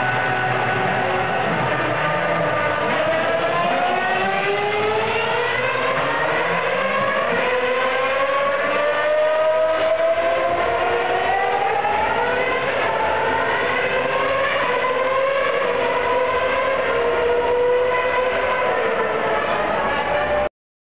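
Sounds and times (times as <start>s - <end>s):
race car engine at high revs: 0.0s - 20.5s.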